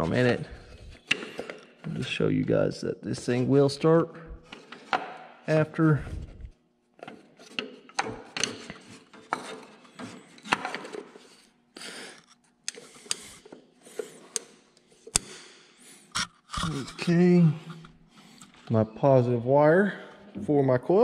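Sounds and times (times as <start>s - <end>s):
clicks and knocks of tools: 7.0s - 11.1s.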